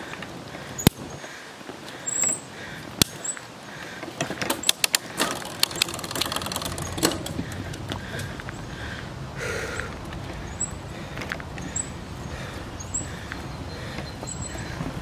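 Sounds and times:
bicycle clicking: 4.2s - 8.5s.

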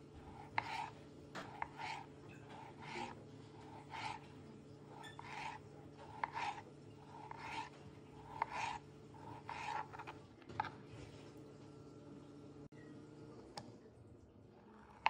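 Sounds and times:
knife slicing on plastic board: 0.2s - 4.3s, 5.0s - 10.8s.

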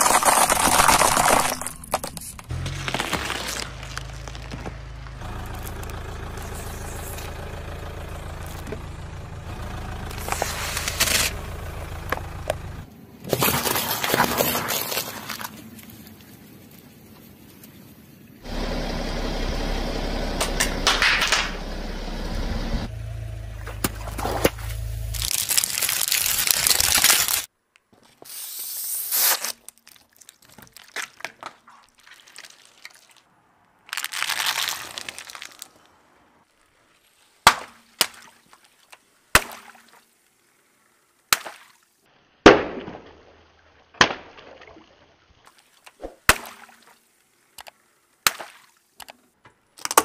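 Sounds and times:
objects crushed under car tyre: 0.0s - 6.6s, 13.2s - 15.5s, 23.7s - 27.5s, 33.9s - 36.0s
sharp cracks: 20.4s - 21.7s, 23.7s - 27.5s.

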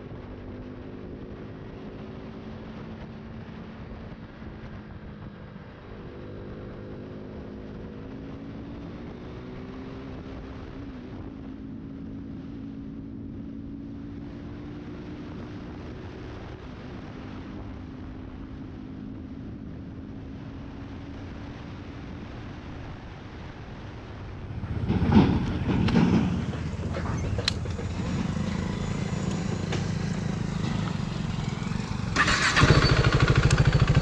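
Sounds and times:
wind and road noise: 0.0s - 34.0s
motorcycle engine running: 23.4s - 34.0s.

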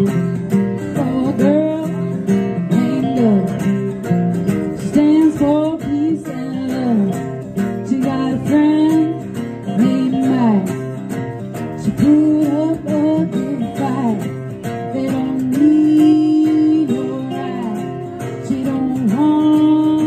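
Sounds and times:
acoustic guitars playing: 0.0s - 20.0s.

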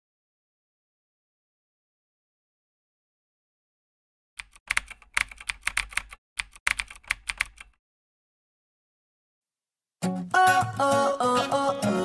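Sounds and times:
rapid keyboard key clicks: 4.4s - 7.8s.

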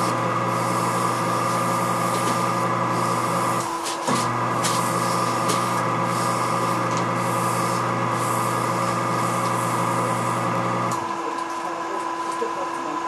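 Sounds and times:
lathe motor hum and whine: 0.0s - 13.0s.

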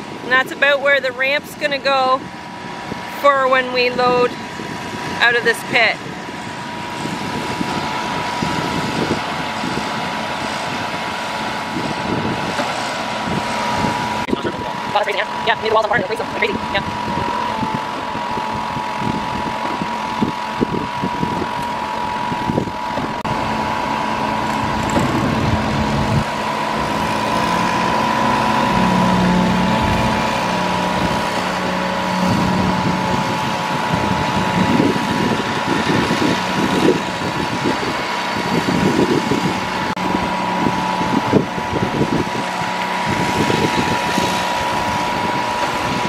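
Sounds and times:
engines droning: 0.0s - 46.0s
low thuds of pumped concrete: 24.3s - 29.1s.

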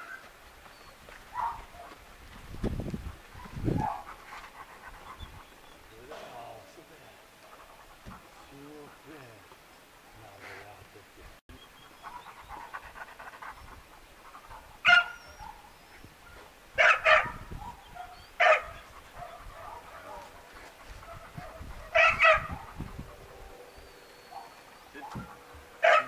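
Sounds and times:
dog panting: 0.6s - 9.4s, 11.5s - 16.0s, 17.8s - 26.0s
dog barking: 1.3s - 2.0s, 3.4s - 4.1s, 14.8s - 15.7s, 16.8s - 20.4s, 21.0s - 22.8s, 24.3s - 26.0s.

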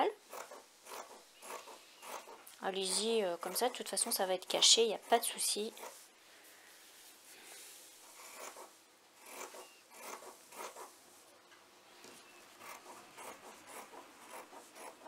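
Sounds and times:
scissors snipping fabric: 8.2s - 10.9s, 12.6s - 15.0s.

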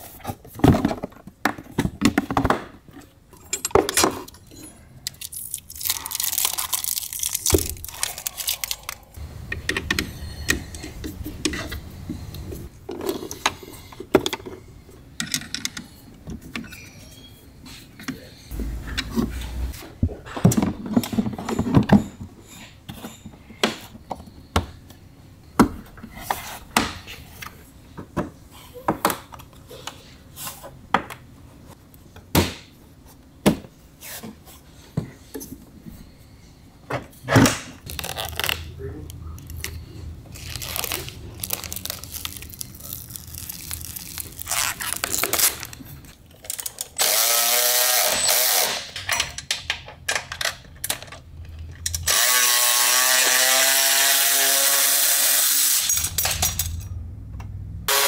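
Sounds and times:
plastic packaging rustling: 5.3s - 9.2s, 37.8s - 38.7s, 39.4s - 47.0s
low rumbling: 18.5s - 20.2s.

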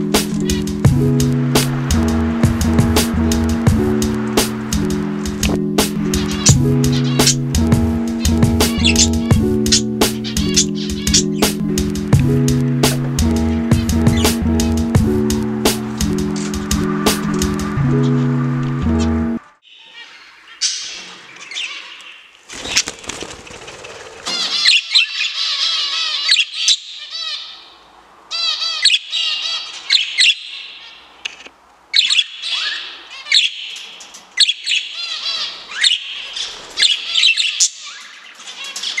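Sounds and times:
budgerigars chattering: 6.0s - 14.9s, 24.3s - 31.1s, 32.0s - 39.0s
wing flapping: 22.4s - 24.6s.

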